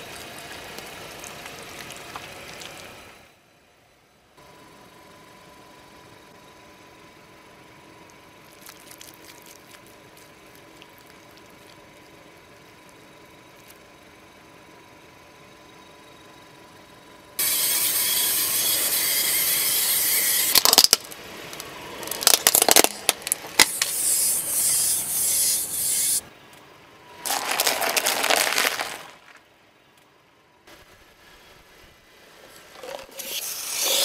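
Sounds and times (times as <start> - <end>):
car tyre rolling over asphalt: 0.0 - 3.4, 7.9 - 14.1, 27.1 - 30.0
brittle objects crushed under tyre: 20.5 - 23.9, 27.2 - 29.5.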